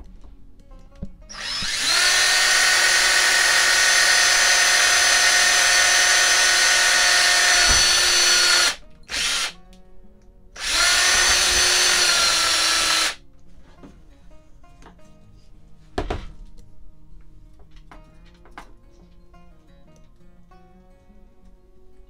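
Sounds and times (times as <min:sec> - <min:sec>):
power drill boring through metal: 0:01.3 - 0:09.6, 0:10.6 - 0:13.2.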